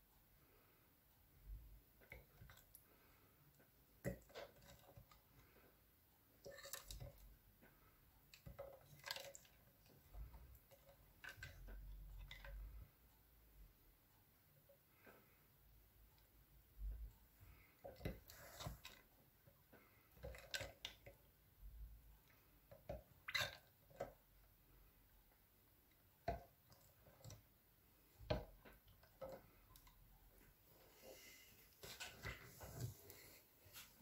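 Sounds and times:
slime squelching under a spoon: 0:06.3 - 0:07.4, 0:08.2 - 0:12.8.

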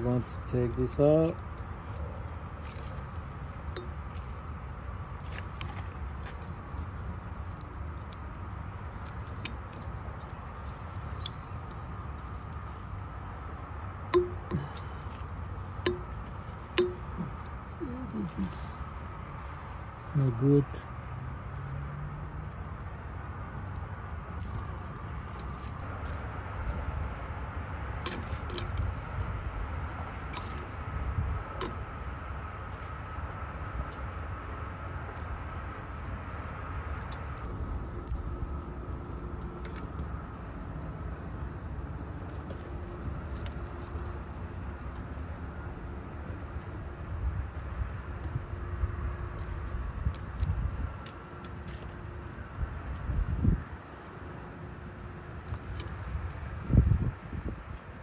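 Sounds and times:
thin steady whine: 0:00.0 - 0:21.6
low machinery rumble: 0:00.0 - 0:58.0.

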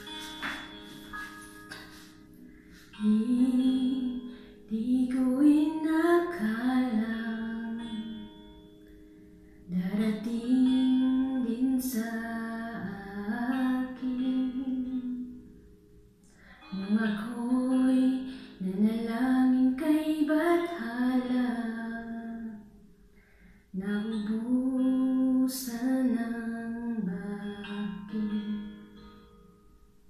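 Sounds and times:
plucked guitar: 0:00.0 - 0:22.7, 0:23.8 - 0:30.0
woman singing: 0:03.0 - 0:08.3, 0:09.7 - 0:15.4, 0:16.6 - 0:22.7, 0:23.8 - 0:28.9.

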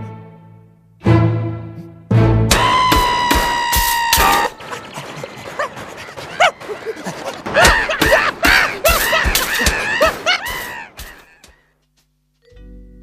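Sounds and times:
cartoon knocks and crashes: 0:02.5 - 0:04.7, 0:07.4 - 0:11.3
cartoon yelps: 0:02.5 - 0:04.8.

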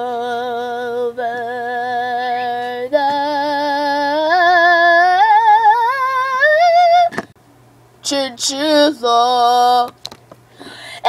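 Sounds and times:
high solo singing voice: 0:00.0 - 0:07.2.

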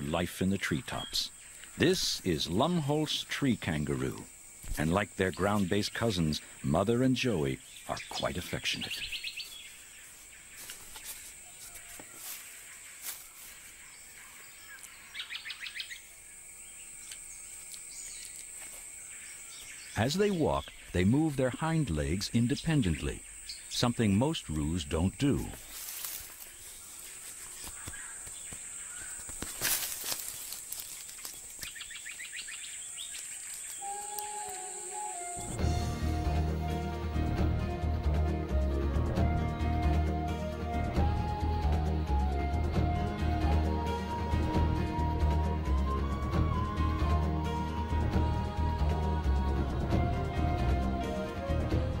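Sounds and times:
high insect whine: 0:00.0 - 0:51.8
bird chirps: 0:04.6 - 0:29.4, 0:30.0 - 0:35.7
snaps and rustles: 0:10.6 - 0:13.6, 0:25.6 - 0:31.9
chirps and clicks: 0:14.6 - 0:16.0, 0:16.8 - 0:18.6, 0:27.4 - 0:35.5
high-pitched insect drone: 0:29.1 - 0:37.2.

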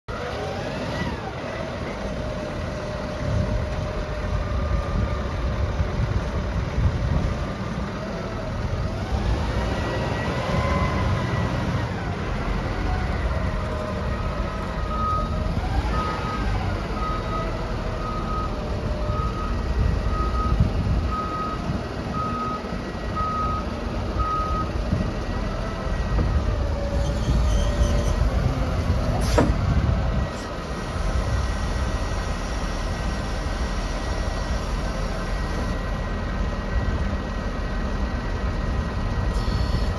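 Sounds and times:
diesel engine working: 0:00.1 - 0:39.9
reversing alarm beeping: 0:14.8 - 0:24.8.

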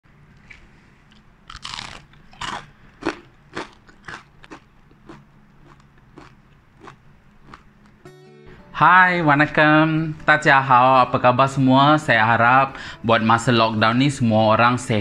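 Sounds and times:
crunchy fritter being chewed: 0:00.3 - 0:08.0.

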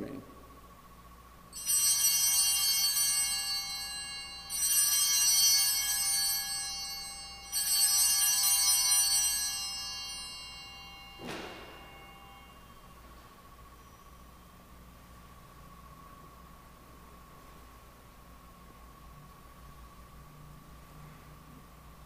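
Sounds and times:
altar bells ringing: 0:01.5 - 0:14.3.

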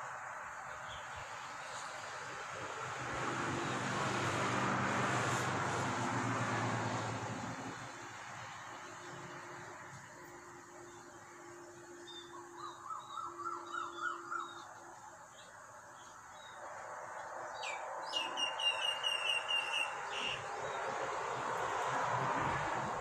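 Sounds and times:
steady background noise: 0:00.0 - 0:23.0
birds calling: 0:12.0 - 0:16.6.

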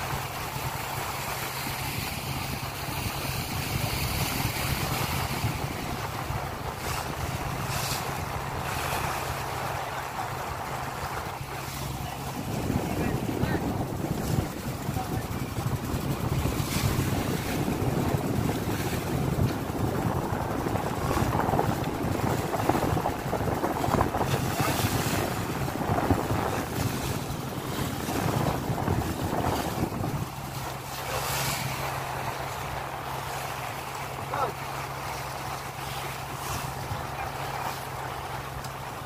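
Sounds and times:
boat engine droning: 0:00.0 - 0:39.0
water rushing along hull: 0:00.0 - 0:39.0
wind buffeting microphone: 0:00.0 - 0:39.0.

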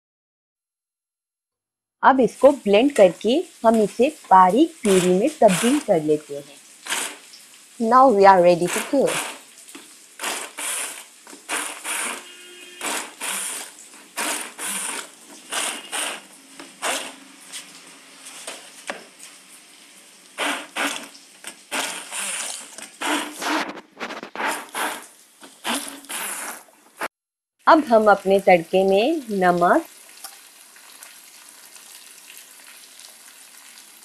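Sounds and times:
stick blender motor whirring: 0:04.5 - 0:06.1, 0:06.8 - 0:07.4, 0:08.4 - 0:09.5, 0:10.2 - 0:17.3, 0:20.4 - 0:27.1.

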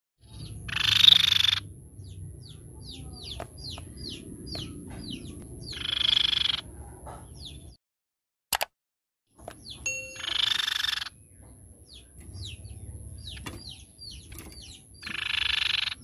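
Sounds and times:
bird short high notes: 0:09.9 - 0:10.8
bird rattling churr: 0:10.2 - 0:11.2, 0:13.2 - 0:16.0.

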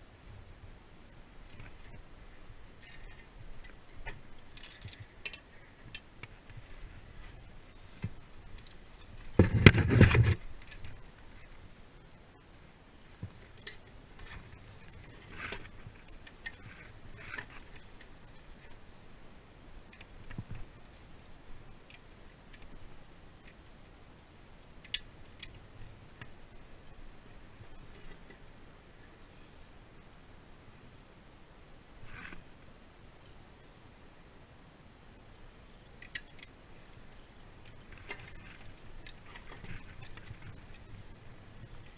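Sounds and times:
wind rumble on microphone: 0:00.0 - 0:36.0, 0:36.6 - 0:41.9
climbing gear clicks: 0:02.8 - 0:11.6, 0:19.8 - 0:24.0, 0:35.8 - 0:41.9.

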